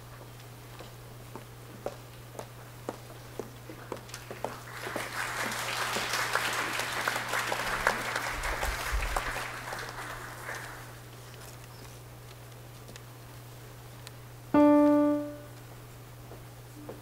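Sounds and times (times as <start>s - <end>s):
footsteps on stage floor: 0.0s - 6.1s, 14.8s - 17.0s
audience applauding: 4.2s - 11.0s.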